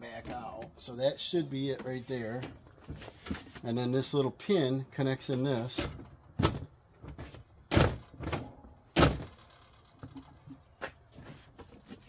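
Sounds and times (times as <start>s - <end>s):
plastic cover clunks and knocks: 5.8s - 9.4s
loud plastic thunks: 5.8s - 10.4s.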